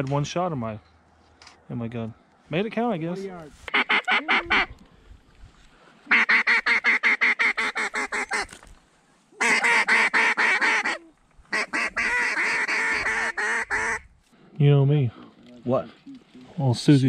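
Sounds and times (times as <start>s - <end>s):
duck call quacks: 3.7s - 4.8s, 6.1s - 8.5s, 9.4s - 14.0s.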